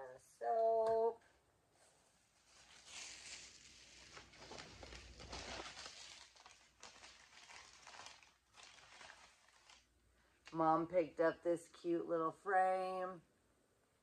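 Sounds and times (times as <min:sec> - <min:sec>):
paper wrapping rustling: 0:02.4 - 0:10.0
plastic bag crinkling: 0:02.4 - 0:10.6.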